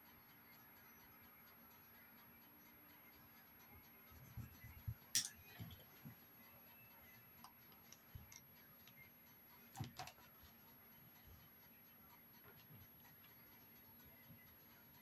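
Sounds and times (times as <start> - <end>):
makeup items clicking and knocking: 9.7 - 10.2.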